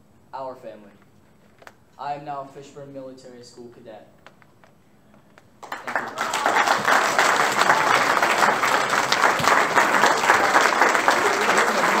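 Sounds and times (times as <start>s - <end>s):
audience applauding: 5.6s - 12.0s.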